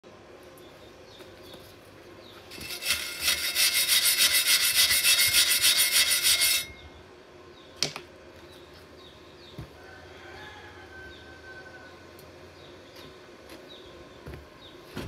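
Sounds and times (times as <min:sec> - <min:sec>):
wire brush scrubbing metal: 0:02.5 - 0:06.8.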